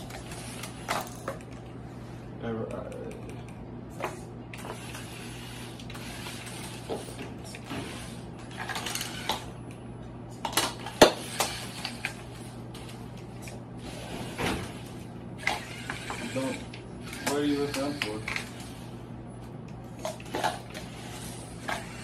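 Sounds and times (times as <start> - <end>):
robot drive whirring: 4.6 - 9.5, 15.4 - 18.8, 20.9 - 22.0.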